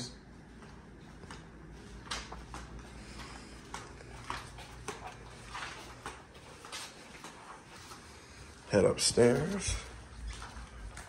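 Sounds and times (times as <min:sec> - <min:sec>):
footsteps on tile floor: 0:00.3 - 0:11.0.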